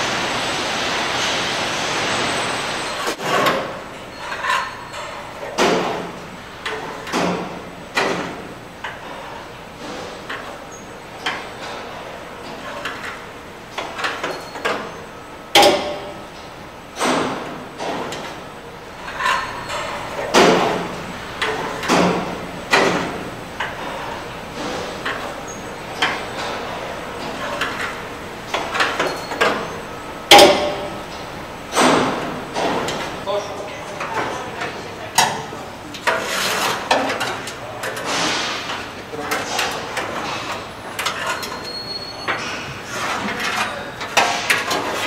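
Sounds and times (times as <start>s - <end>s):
steady background noise: 0.0s - 45.0s
metallic knocks and clanks: 19.0s - 24.0s.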